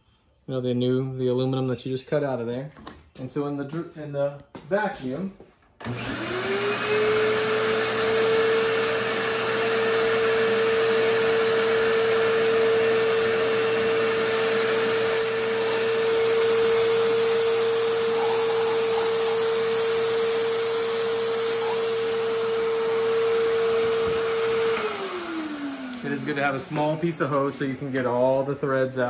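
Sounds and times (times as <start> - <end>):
vacuum whining: 5.8 - 29.0.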